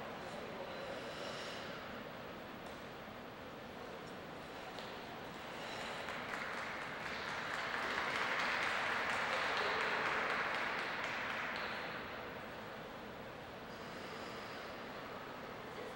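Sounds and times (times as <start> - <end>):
audience applauding: 5.6 - 12.2.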